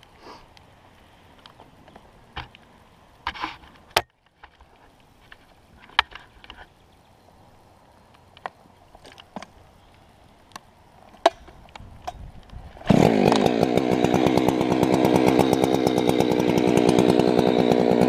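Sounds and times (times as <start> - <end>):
scraping rustle: 1.5 - 6.8.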